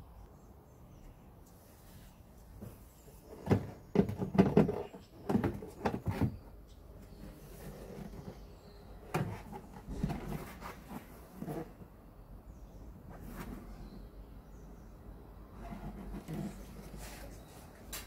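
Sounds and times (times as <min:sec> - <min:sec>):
plastic unit rubbing: 0:03.2 - 0:11.9, 0:15.5 - 0:17.5
hard plastic knocks and clicks: 0:03.4 - 0:06.4.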